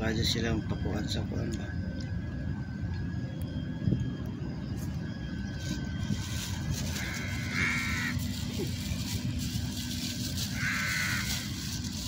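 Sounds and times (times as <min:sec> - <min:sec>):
steady low rumble: 0:00.0 - 0:12.0
harsh animal calls: 0:06.8 - 0:08.8, 0:10.5 - 0:11.9.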